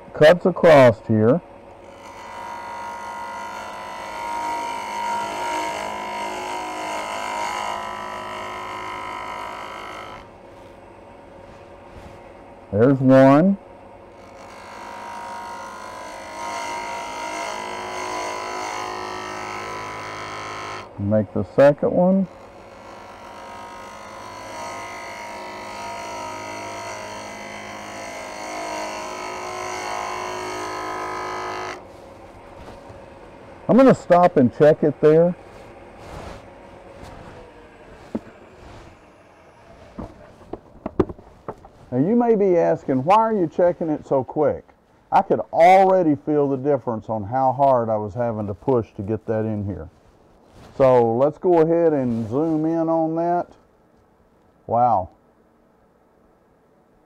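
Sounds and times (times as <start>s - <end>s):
wood lathe running: 1.8s - 10.4s, 14.2s - 20.9s, 22.1s - 43.2s
gouge scraping wood: 35.4s - 42.0s.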